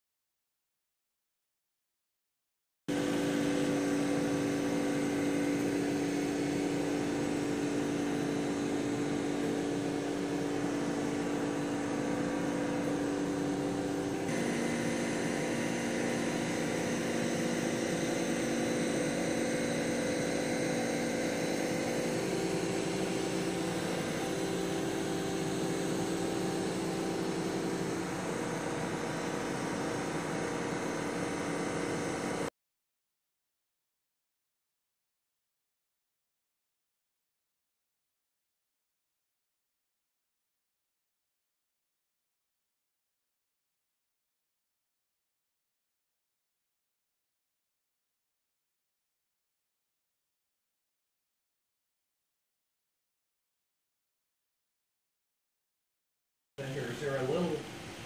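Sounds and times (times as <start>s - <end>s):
steady mechanical hum: 2.9s - 32.5s, 56.6s - 58.0s.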